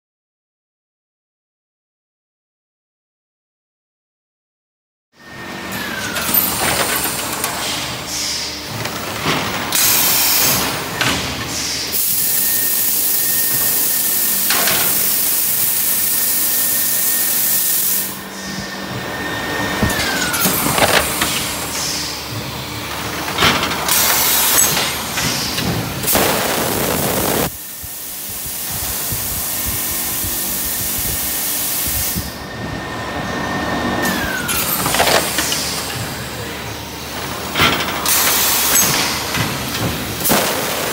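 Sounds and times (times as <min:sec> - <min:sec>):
machine whine: 0:05.2 - 0:40.9
air hissing: 0:23.9 - 0:32.4.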